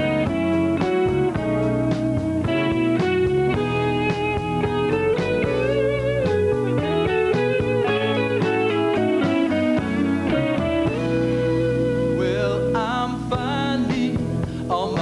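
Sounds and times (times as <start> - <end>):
drum strikes: 0.0 - 11.6
electric guitar: 0.0 - 15.0
live rock band playing: 0.0 - 15.0.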